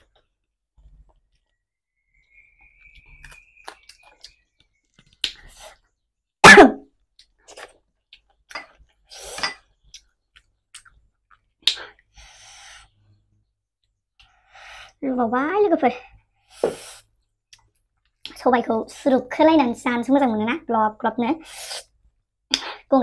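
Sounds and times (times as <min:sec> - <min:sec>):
lip smacks and chewing: 0:03.0 - 0:05.8, 0:09.9 - 0:12.1.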